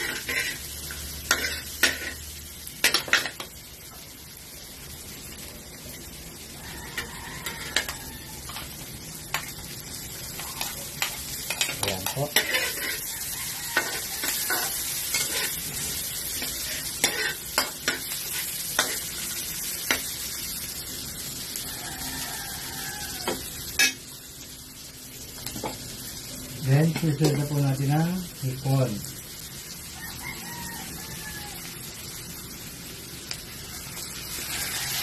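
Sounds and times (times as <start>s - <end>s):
metal spatula scraping wok: 0.0s - 3.4s, 10.3s - 20.1s, 34.2s - 35.0s
garlic and onion sizzling: 0.0s - 35.0s.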